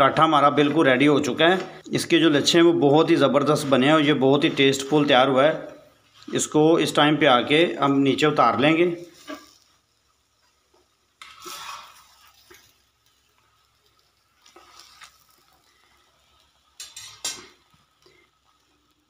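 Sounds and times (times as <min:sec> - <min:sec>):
utensil and plate scraping and clattering: 0:16.8 - 0:17.6.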